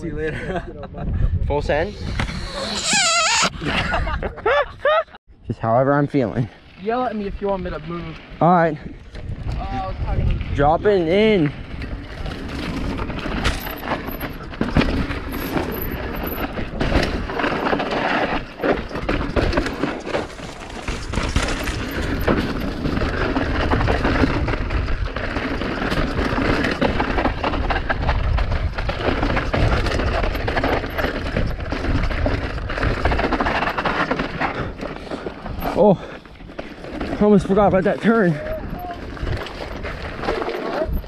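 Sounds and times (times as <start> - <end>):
wind rush on microphone: 0.0 - 4.9, 7.3 - 13.6, 20.9 - 33.6, 38.3 - 41.0
bike tyre noise on dirt: 6.2 - 41.0
bike rattling and knocking: 6.8 - 41.0.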